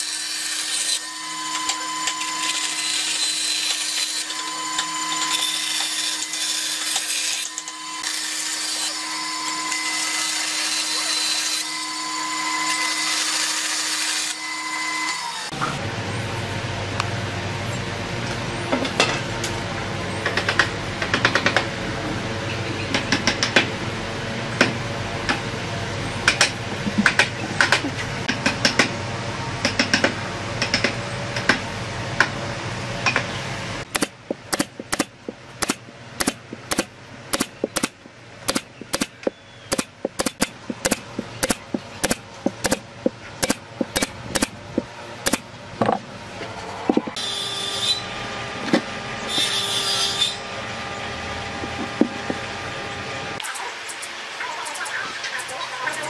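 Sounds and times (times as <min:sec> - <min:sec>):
steady mechanical noise: 0:00.0 - 0:56.0
nail gun shots: 0:33.9 - 0:39.1, 0:39.7 - 0:42.8, 0:43.4 - 0:44.6, 0:45.2 - 0:45.4
scattered knocks: 0:33.9 - 0:46.0.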